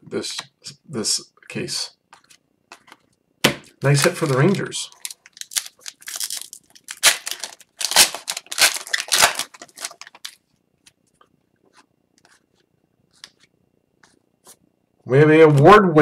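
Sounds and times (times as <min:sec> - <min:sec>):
card pack wrapper tearing: 0:03.8 - 0:10.4.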